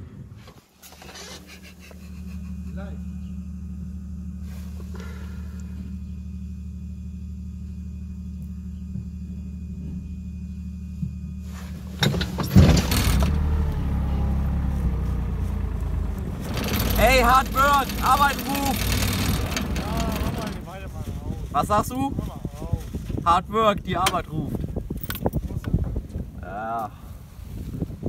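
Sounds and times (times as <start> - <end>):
diesel engine idling and revving: 1.2 - 22.2.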